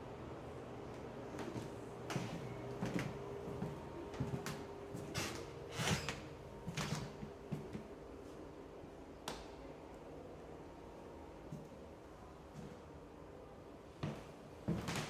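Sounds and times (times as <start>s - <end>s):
faint steady hum: 0.0s - 15.0s
footsteps on hardwood floor: 1.4s - 5.5s.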